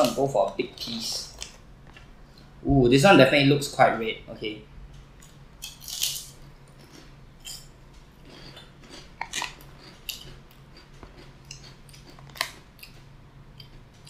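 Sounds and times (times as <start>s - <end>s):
crunching fried fish skin: 5.6s - 6.4s.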